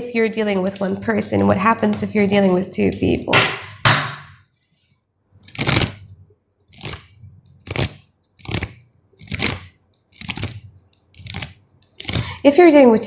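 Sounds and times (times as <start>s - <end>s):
cards being shuffled: 5.4s - 6.1s, 6.7s - 12.4s.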